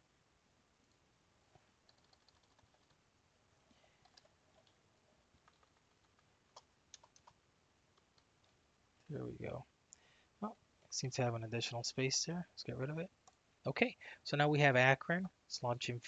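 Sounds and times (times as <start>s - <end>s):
keyboard keys clicking: 1.9s - 3.0s, 5.4s - 6.1s, 6.9s - 7.4s.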